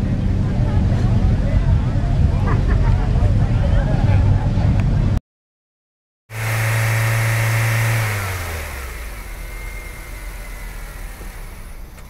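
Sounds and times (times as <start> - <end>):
car engine driving off: 6.3 - 12.0.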